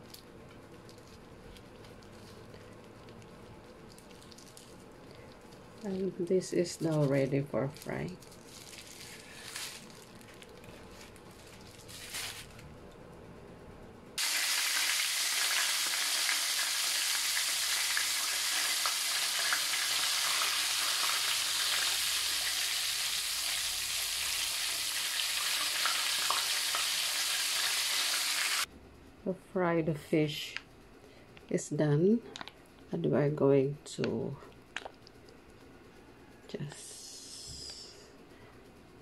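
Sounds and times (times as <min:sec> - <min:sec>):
fish sizzling in hot oil: 0:14.2 - 0:28.7.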